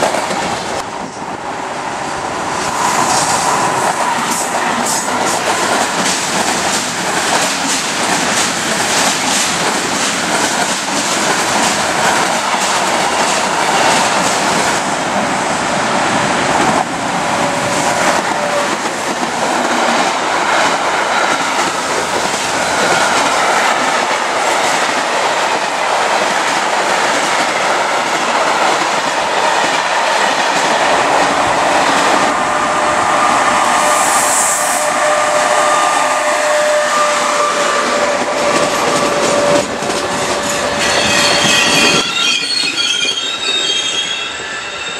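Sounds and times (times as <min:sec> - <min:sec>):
train wheel squeal: 0:33.7 - 0:44.9.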